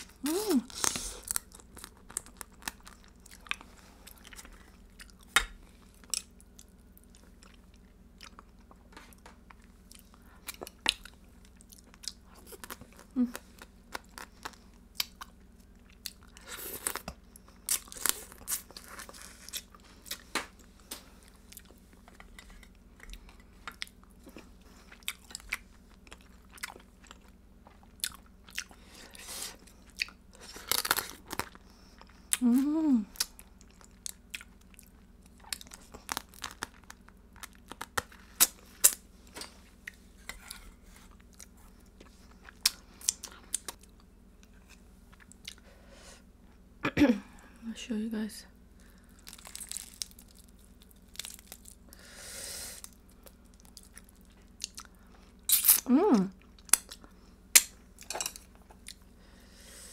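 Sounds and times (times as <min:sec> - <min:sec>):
person humming: 0:00.2 - 0:01.2, 0:13.1 - 0:13.4, 0:32.4 - 0:33.2, 0:55.9 - 0:56.3.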